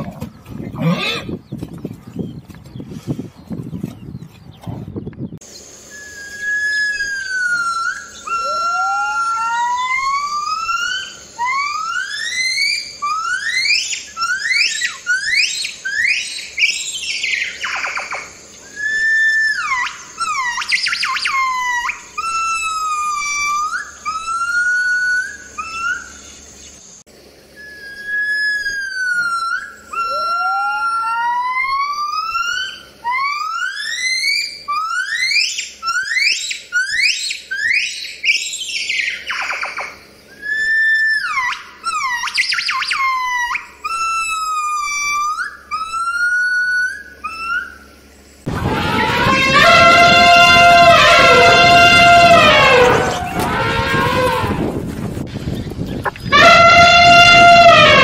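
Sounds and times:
gibbon whooping calls: 5.9 - 26.4, 27.6 - 54.7, 56.3 - 58.0
gibbon sliding wail: 6.3 - 14.6, 28.0 - 37.8, 40.4 - 47.8, 48.5 - 54.7, 56.3 - 58.0.

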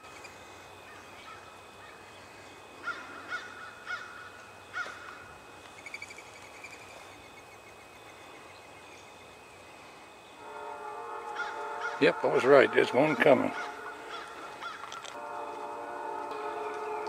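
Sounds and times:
bird calls: 0.0 - 10.4, 11.2 - 12.1, 13.2 - 15.2.

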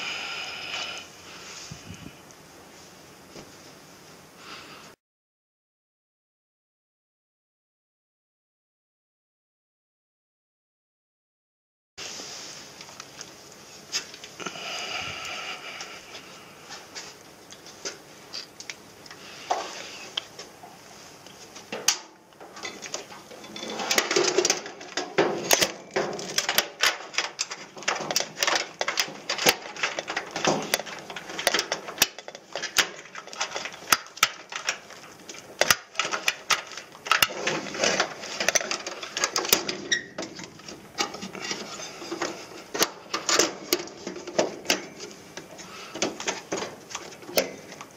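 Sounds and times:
metal panels clicking and rattling: 21.7 - 47.9.

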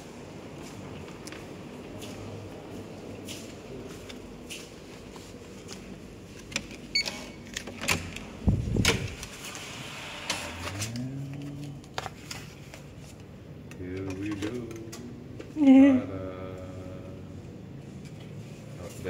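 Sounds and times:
keycard lock beep: 6.9 - 7.4.

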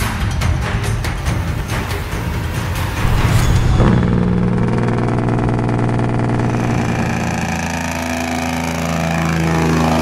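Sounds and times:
truck engine brake drone: 3.0 - 10.0.

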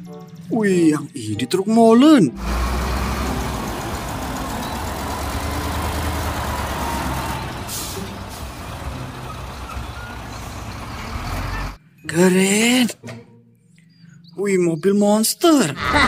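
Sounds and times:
diesel truck engines rumbling: 2.3 - 11.8
air brake hiss: 7.6 - 8.5.

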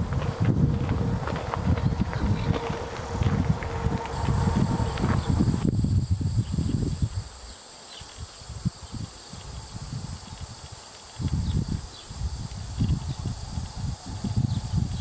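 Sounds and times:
low rumbling noise: 0.0 - 7.3, 11.4 - 15.0.

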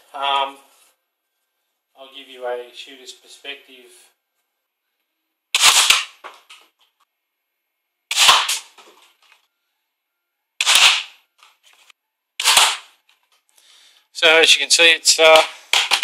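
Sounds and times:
dart blaster shots: 5.6 - 6.2, 8.1 - 8.8, 10.6 - 11.2, 12.4 - 13.0.

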